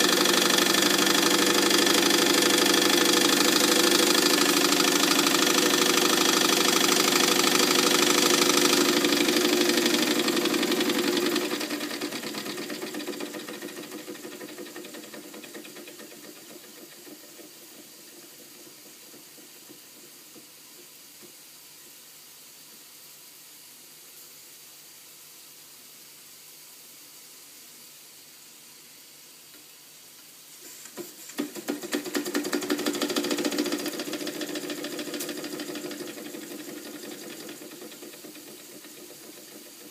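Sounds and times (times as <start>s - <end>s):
toy steam engine clattering: 0.0s - 21.0s, 30.8s - 39.9s.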